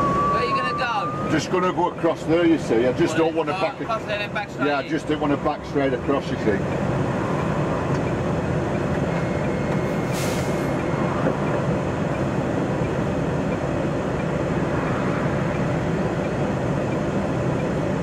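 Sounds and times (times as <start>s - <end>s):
lorry diesel engine running: 0.0s - 18.0s
air brake hiss: 9.9s - 10.8s.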